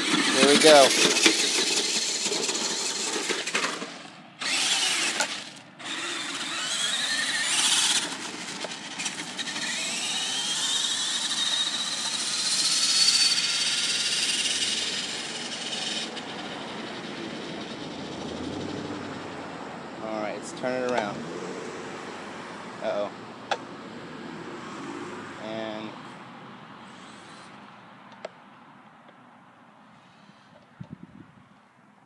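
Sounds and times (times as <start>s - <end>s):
toy truck motor whining: 0.0s - 18.8s.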